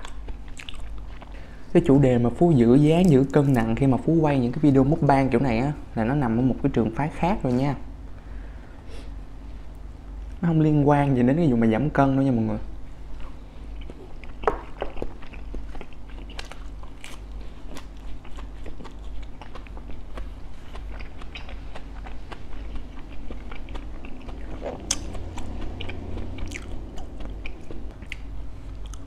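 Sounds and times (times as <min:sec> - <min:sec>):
chewing crispy food: 0:00.0 - 0:01.5, 0:13.0 - 0:29.0.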